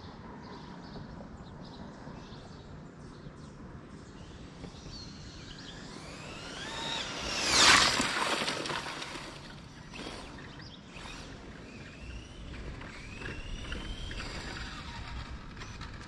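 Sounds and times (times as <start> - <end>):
rc car motor whine passing: 4.2 - 16.0.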